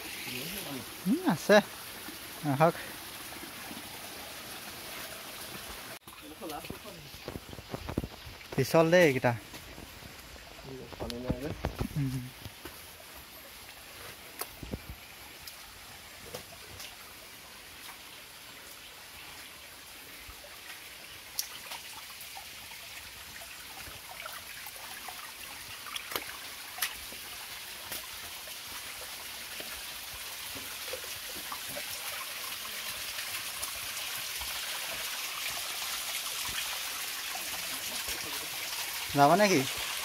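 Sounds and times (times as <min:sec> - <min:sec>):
small waterfall splashing: 0:00.0 - 0:13.0, 0:13.6 - 0:40.0
water trickling over stones: 0:00.0 - 0:40.0.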